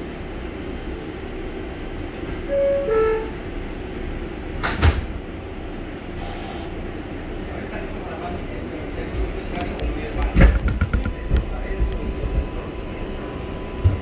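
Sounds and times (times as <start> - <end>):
low hum of train: 0.0 - 14.0
train doors sliding shut: 4.2 - 6.7.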